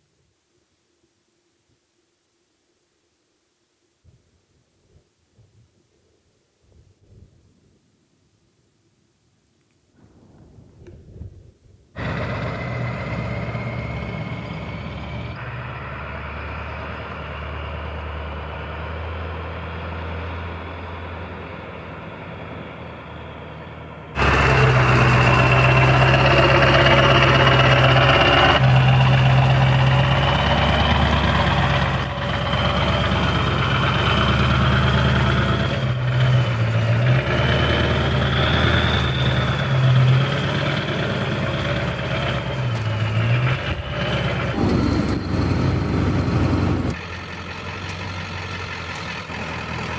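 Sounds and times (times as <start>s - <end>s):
diesel truck engine running: 12.0s - 49.9s
high whine: 22.6s - 47.0s.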